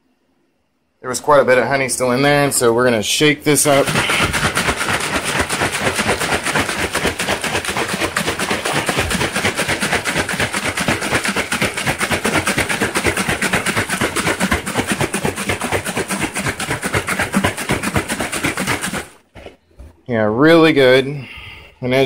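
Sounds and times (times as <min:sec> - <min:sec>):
water sloshing in plastic jug: 0:03.6 - 0:20.0.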